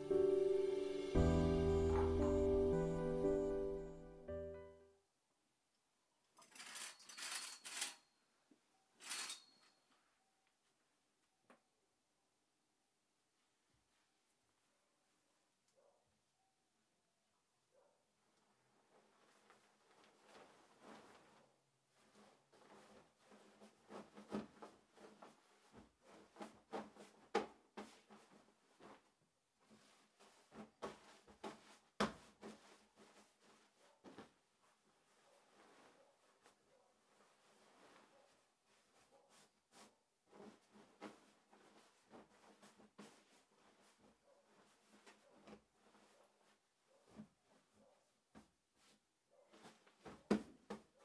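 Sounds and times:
curtain sliding along rail: 6.4 - 8.0, 9.0 - 9.8
bedding rustling: 18.2 - 51.0.

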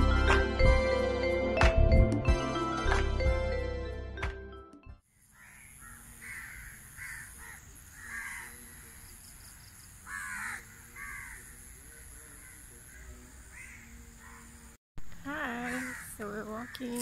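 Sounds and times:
crows cawing: 5.3 - 9.1, 10.0 - 14.7, 15.5 - 17.0.

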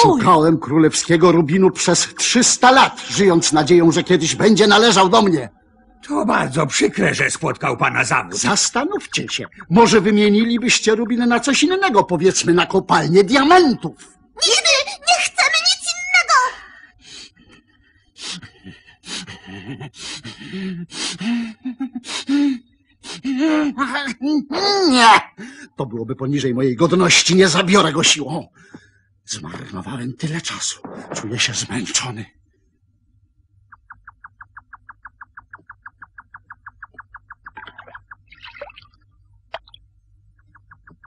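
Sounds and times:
rapid even chirping: 8.1 - 11.6, 33.6 - 38.8, 39.6 - 41.0
man breathing heavily: 18.1 - 23.3.

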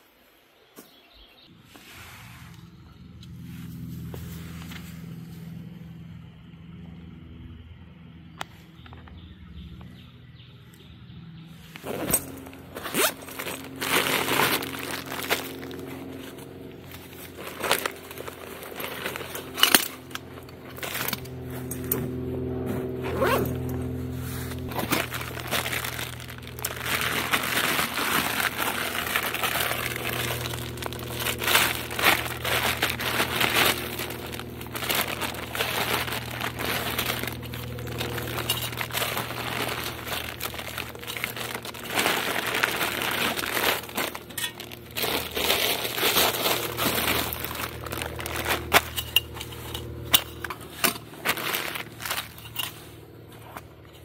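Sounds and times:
nylon sacks crinkling and rustling: 11.6 - 54.0.

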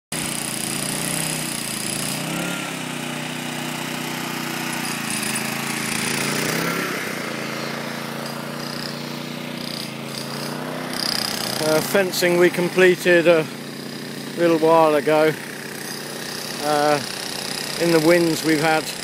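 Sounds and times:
petrol generator running: 0.2 - 19.0.

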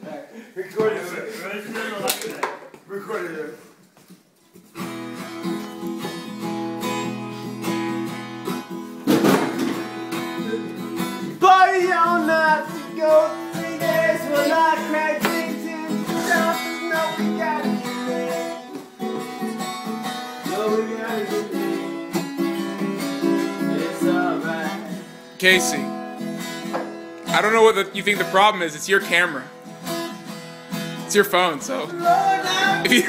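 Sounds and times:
acoustic guitar strumming chords: 4.6 - 33.0
person singing: 10.3 - 25.2, 31.7 - 33.0.

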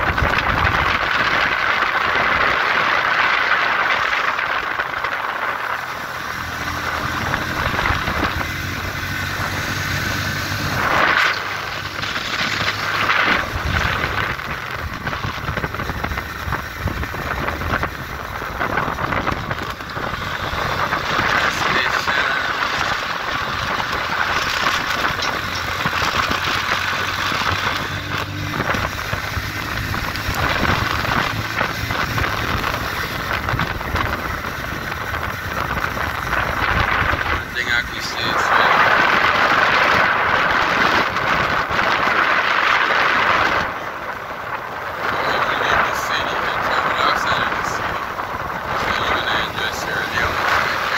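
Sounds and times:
motorcycle engine running: 0.0 - 50.9
wind on microphone: 0.0 - 50.9.

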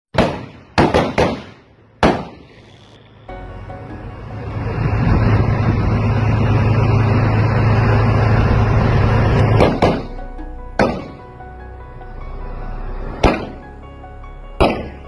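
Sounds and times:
sharp bangs: 0.1 - 2.6, 9.2 - 11.4, 13.1 - 13.8, 14.6 - 15.0
heavy vehicle engine droning: 1.8 - 15.0.

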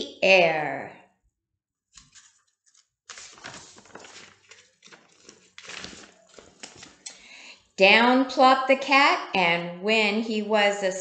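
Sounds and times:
book pages turning: 1.9 - 7.1
paper rustling: 1.9 - 7.1.

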